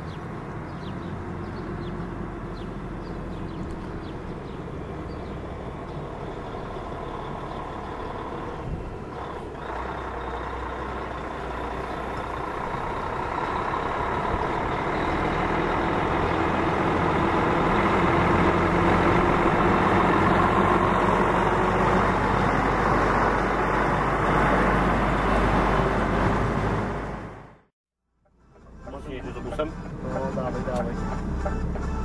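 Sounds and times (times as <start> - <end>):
trailer wheels rolling: 0.0 - 27.5
truck diesel engine rumbling: 0.0 - 32.0.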